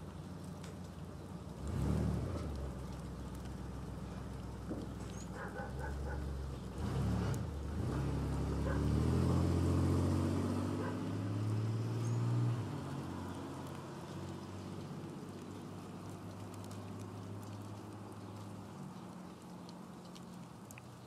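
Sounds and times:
car engine passing by: 1.5s - 4.7s, 5.3s - 18.6s.

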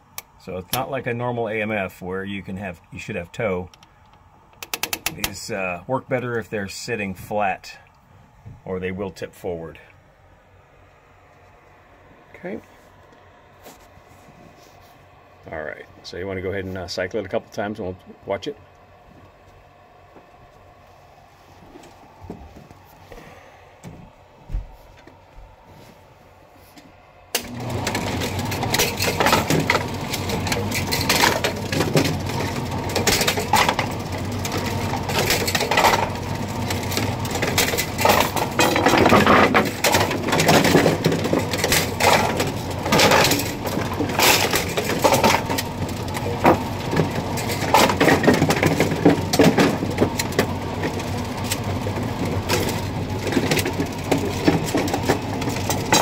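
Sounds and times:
pinsetter mechanical clatter: 4.6s - 5.7s, 27.4s - 56.0s.

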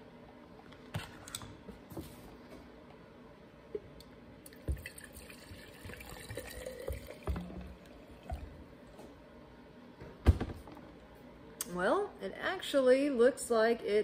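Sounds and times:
fuel trickling into a glass jar: 4.7s - 7.3s.

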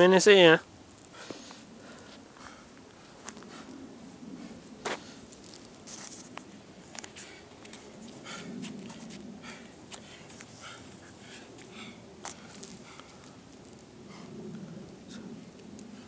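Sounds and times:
soft scuffs on concrete: 4.8s - 9.3s.

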